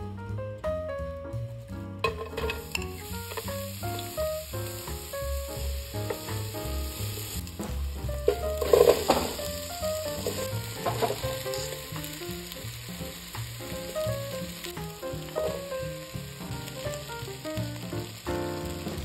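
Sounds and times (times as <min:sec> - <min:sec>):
gentle background melody: 0:00.0 - 0:19.0
onions and potatoes sizzling: 0:01.0 - 0:19.0
potatoes tipped into hot oil: 0:02.0 - 0:16.8.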